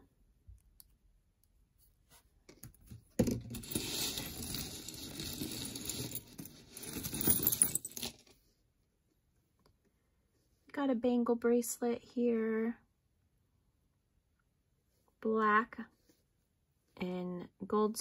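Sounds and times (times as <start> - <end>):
jewelry jingling and clinking: 3.5 - 8.3.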